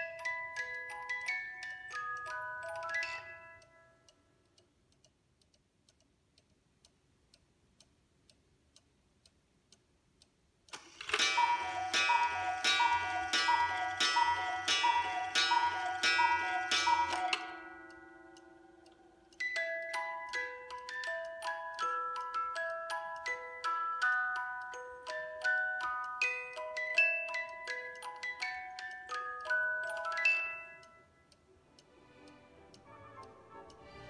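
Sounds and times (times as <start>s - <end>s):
clock ticking: 0.0s - 34.0s.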